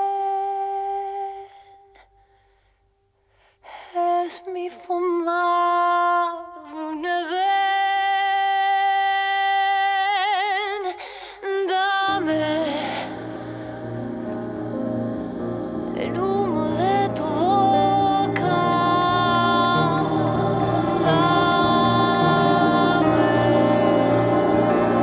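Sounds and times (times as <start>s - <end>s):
woman singing unaccompanied: 0.0s - 1.9s, 3.9s - 13.8s, 16.0s - 25.0s
low instrumental accompaniment: 13.1s - 25.0s.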